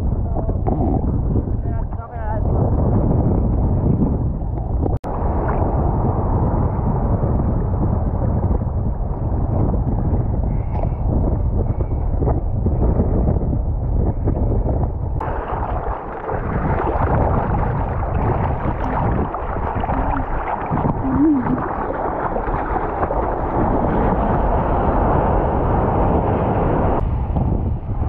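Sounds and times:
water gurgle: 0.0 - 27.0
wind on microphone: 0.0 - 28.0
water sloshing and splashing: 15.2 - 25.4.

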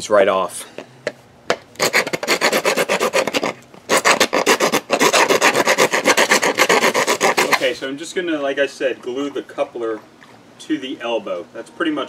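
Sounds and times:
file rasping plastic pipe: 1.8 - 7.8.

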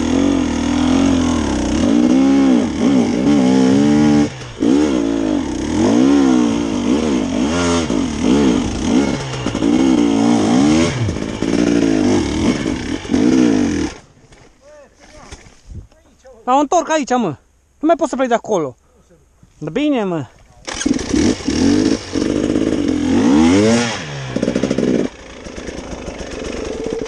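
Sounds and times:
dirt bike engine revving: 0.0 - 14.1, 20.6 - 27.0.

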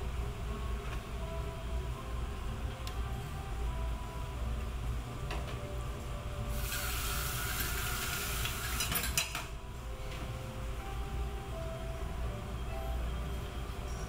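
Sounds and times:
hiss: 6.6 - 8.8.

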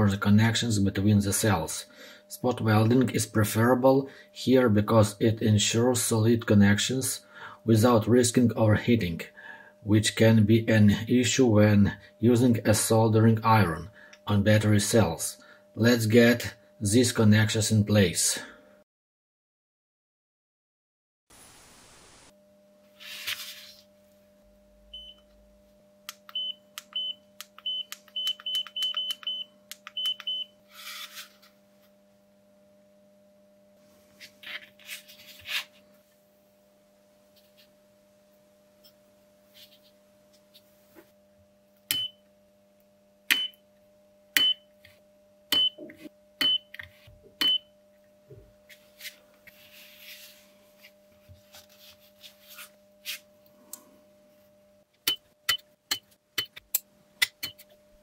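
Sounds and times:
faint steady hum: 0.0 - 18.8, 21.4 - 58.0
spot welder snapping with beep: 26.2 - 30.5, 41.9 - 42.3, 43.3 - 43.6, 44.4 - 44.6, 45.5 - 45.8, 46.4 - 46.8, 47.4 - 47.7, 55.0 - 56.6.

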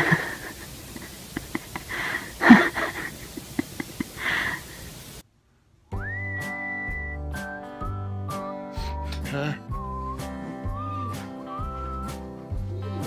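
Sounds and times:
music with whistled melody: 5.9 - 13.0.

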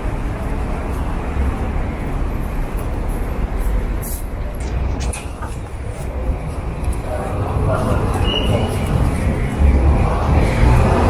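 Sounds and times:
road vehicles passing: 0.0 - 11.0.

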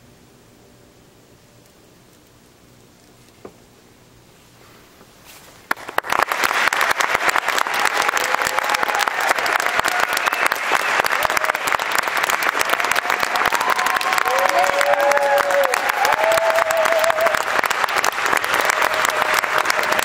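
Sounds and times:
audience applause: 5.7 - 20.0.

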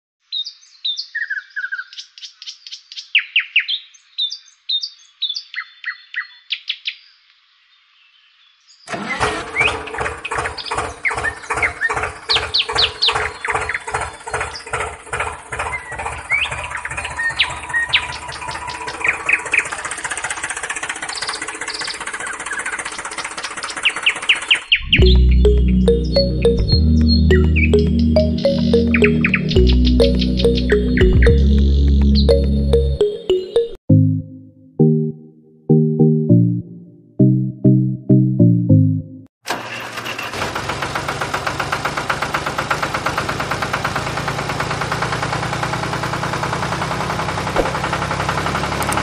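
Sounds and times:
bird chirps: 0.3 - 7.2, 9.6 - 14.8, 15.6 - 20.0, 20.8 - 33.8
music with a steady beat: 25.0 - 34.2.

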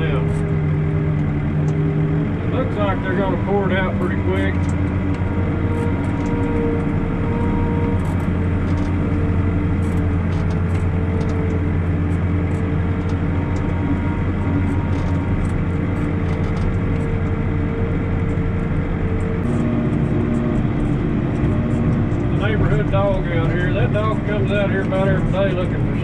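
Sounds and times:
diesel engine humming: 0.0 - 26.0
steady tones: 0.0 - 26.0.

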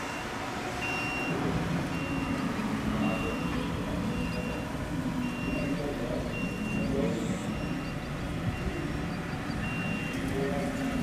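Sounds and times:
reversing alarm beeping: 0.0 - 11.0.

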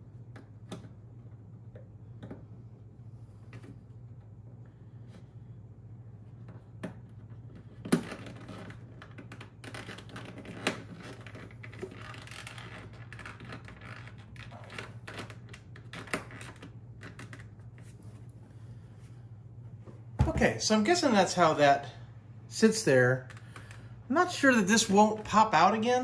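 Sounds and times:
plastic scraping on plastic: 6.4 - 18.0.

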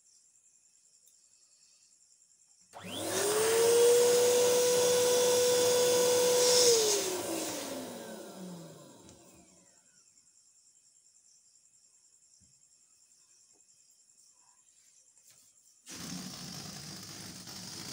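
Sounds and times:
electric air pump motor humming: 2.8 - 9.6, 15.9 - 17.9.

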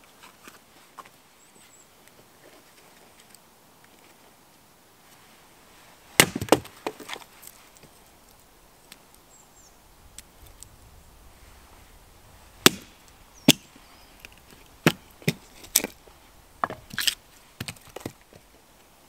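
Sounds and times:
hatchet chopping wood: 6.2 - 7.0, 12.6 - 13.6, 14.8 - 15.9.

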